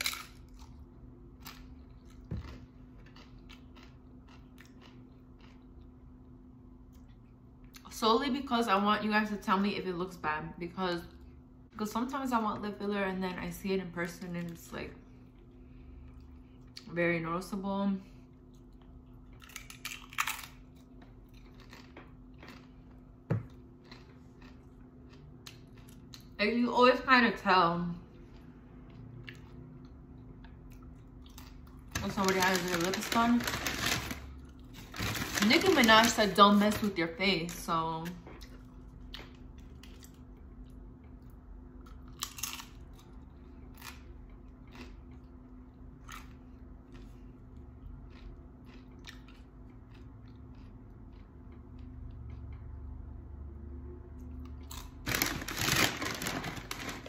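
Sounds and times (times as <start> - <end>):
soft chewing: 0.0 - 7.9, 18.1 - 26.4, 28.0 - 31.9, 38.2 - 52.9
crunchy bites into tortilla chip: 19.4 - 22.7, 41.9 - 43.0.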